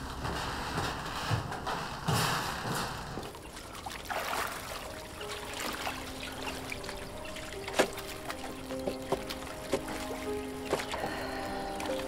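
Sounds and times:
faint steady music tones: 3.2 - 12.0
water trickling and splashing: 3.2 - 12.0.

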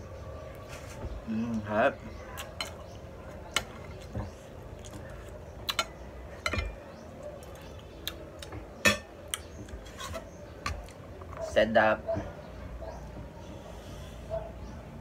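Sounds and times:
cutlery clicking against a plate: 5.7 - 6.8.

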